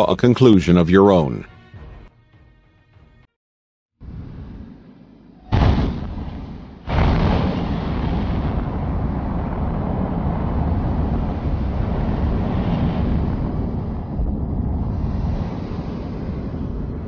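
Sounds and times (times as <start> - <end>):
explosion blasts: 5.4 - 17.0
long low rumble: 7.4 - 17.0.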